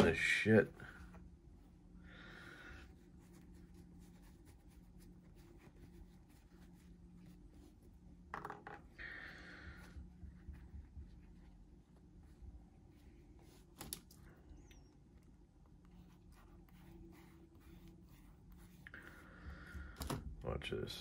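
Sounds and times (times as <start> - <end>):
cloth rubbing: 2.7 - 8.2, 15.7 - 19.4.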